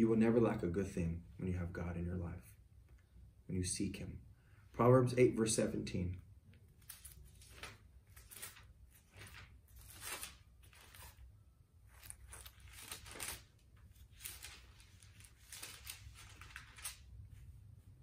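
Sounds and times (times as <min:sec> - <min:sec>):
pages rustling: 0:06.7 - 0:17.5.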